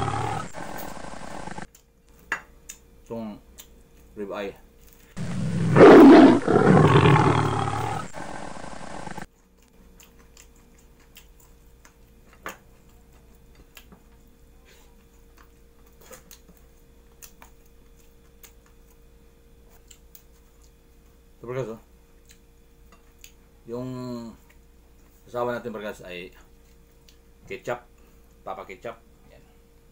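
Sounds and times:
big cat roar: 0.0s - 1.7s, 5.2s - 9.3s
faint eating clicks: 4.8s - 14.2s, 15.0s - 19.0s, 23.0s - 23.4s.

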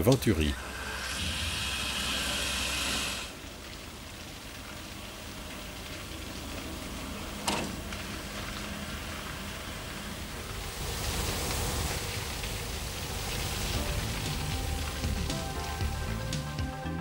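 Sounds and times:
rushing water and steam: 0.0s - 17.0s
steam hissing: 0.4s - 3.5s.

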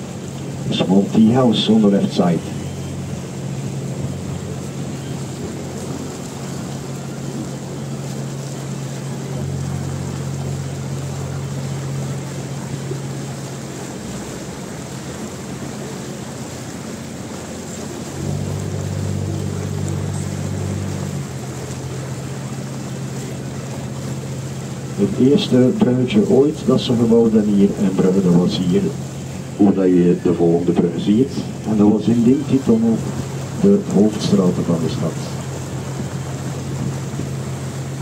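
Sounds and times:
boat motor humming: 0.0s - 38.0s
water: 0.0s - 38.0s
wind noise: 35.7s - 38.0s.

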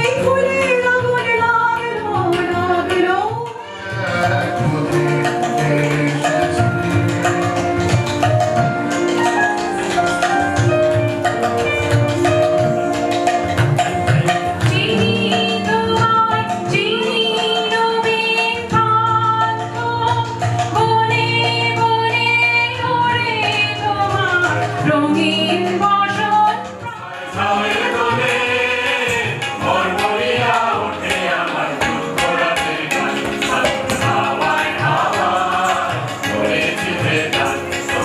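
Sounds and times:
woman singing: 0.0s - 3.7s, 14.6s - 27.2s
harmonium chords: 0.0s - 38.0s
tabla strokes: 1.1s - 16.9s, 23.1s - 38.0s
voices singing together: 3.9s - 7.8s, 26.9s - 38.0s.

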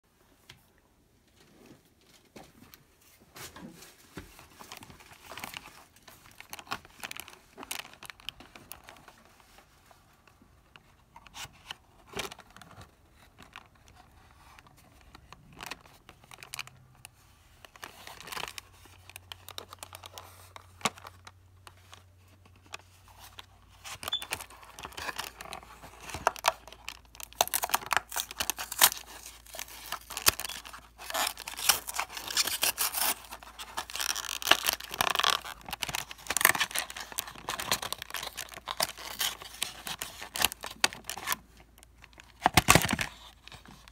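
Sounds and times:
cardboard packaging crinkling: 3.6s - 10.2s, 10.8s - 43.9s.

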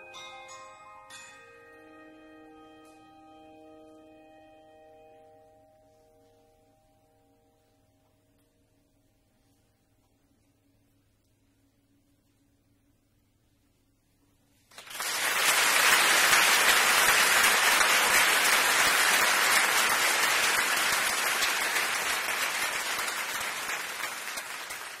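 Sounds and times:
audience applause: 14.7s - 25.0s.

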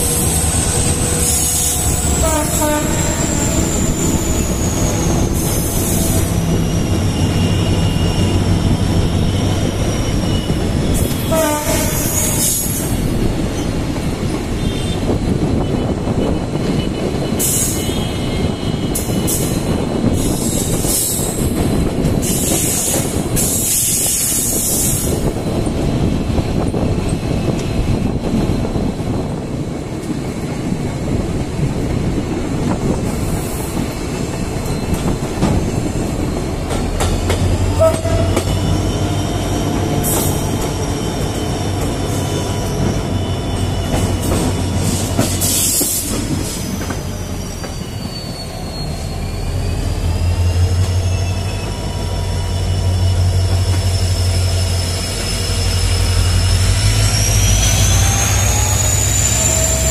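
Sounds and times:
train wheels rattling over track: 0.0s - 59.9s
wheels squealing: 33.2s - 59.9s.

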